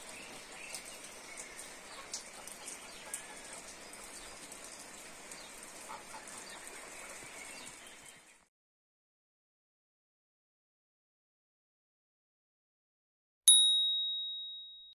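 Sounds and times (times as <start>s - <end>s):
water drips ticking: 0.0s - 8.3s
rain falling on leaves: 0.0s - 8.4s.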